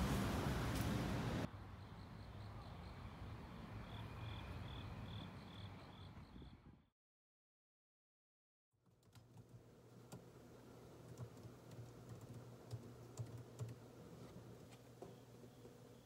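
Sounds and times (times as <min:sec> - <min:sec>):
laptop keyboard typing: 0:11.0 - 0:13.8.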